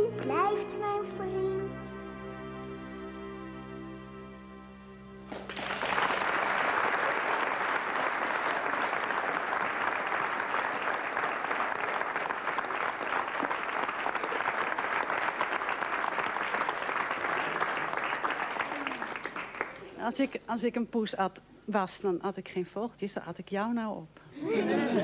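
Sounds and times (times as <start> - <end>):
audience applauding: 5.3 - 20.0.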